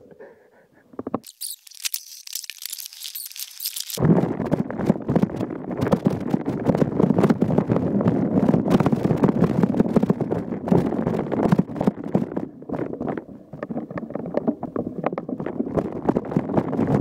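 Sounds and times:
bike tyres rumbling on trail: 0:04.0 - 0:17.0.

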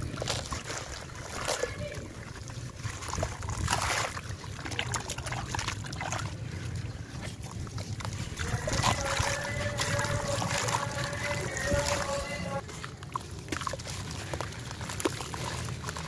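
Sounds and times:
water sloshing and splashing: 0:00.0 - 0:16.0
steady hum: 0:05.2 - 0:13.7.

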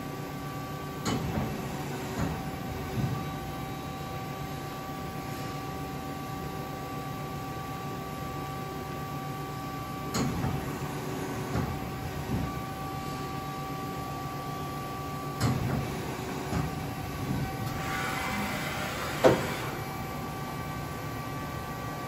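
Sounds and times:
machine hum: 0:16.0 - 0:22.0.

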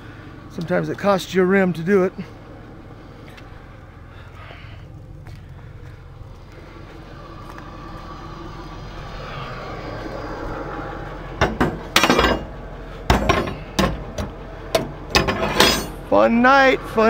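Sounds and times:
traffic noise: 0:00.0 - 0:17.0
vehicle engine passing: 0:00.0 - 0:17.0
metal clanks and scraping: 0:11.4 - 0:16.1.

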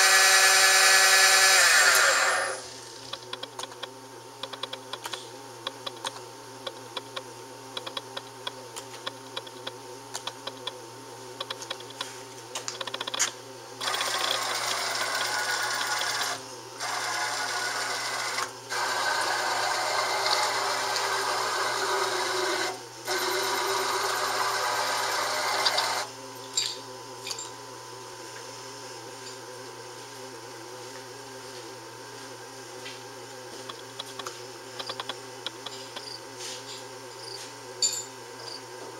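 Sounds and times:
lathe machine hum: 0:00.0 - 0:03.3, 0:13.8 - 0:26.3.

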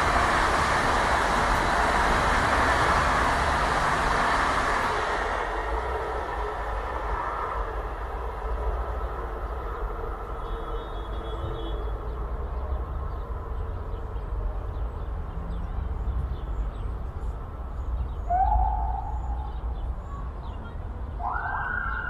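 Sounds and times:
siren: 0:21.2 - 0:22.0.

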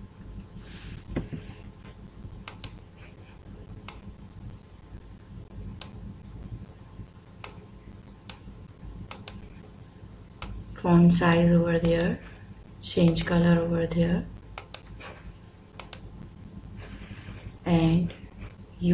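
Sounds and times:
steady low hum: 0:00.0 - 0:18.9
computer mouse clicks: 0:02.4 - 0:02.8, 0:03.8 - 0:04.1, 0:05.8 - 0:06.0, 0:07.4 - 0:09.5, 0:10.4 - 0:10.6, 0:11.3 - 0:12.2, 0:14.6 - 0:15.0, 0:15.7 - 0:16.1.

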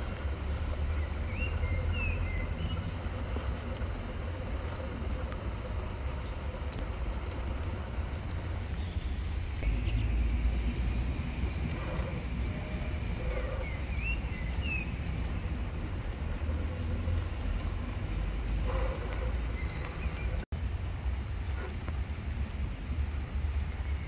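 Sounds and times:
bird chirps: 0:00.0 - 0:21.0.

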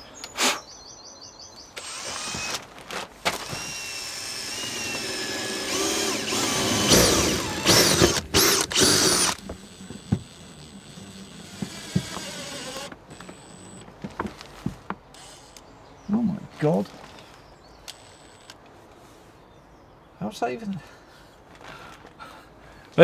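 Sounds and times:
cordless drill drilling into plastic: 0:01.8 - 0:02.6, 0:03.3 - 0:13.9, 0:15.2 - 0:15.6, 0:17.9 - 0:18.6.

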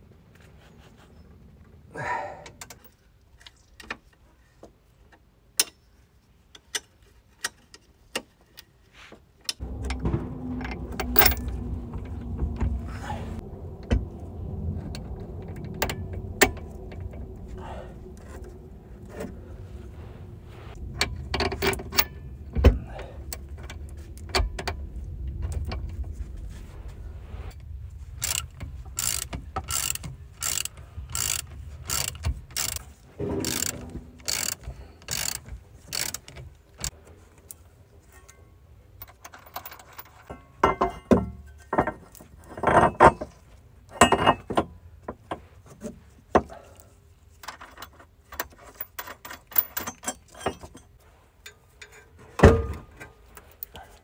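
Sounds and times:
steady low rumble: 0:09.6 - 0:35.4
metal tools clinking on steel: 0:47.4 - 0:53.8.

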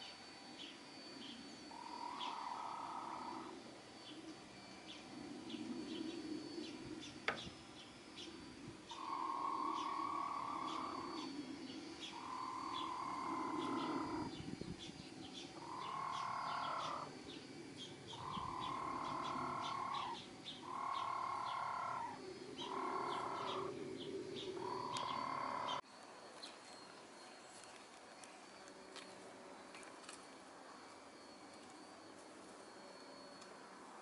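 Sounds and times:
background hiss: 0:00.0 - 0:34.0
drawn-out bird call: 0:08.9 - 0:11.4, 0:12.0 - 0:25.8.

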